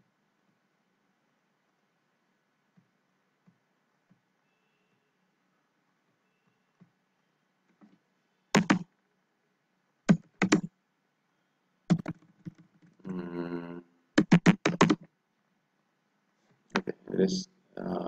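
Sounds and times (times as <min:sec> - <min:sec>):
keyboard key clicks: 0:08.6 - 0:08.8, 0:10.1 - 0:10.7, 0:11.9 - 0:12.6, 0:14.2 - 0:15.1
person humming briefly: 0:13.1 - 0:13.8.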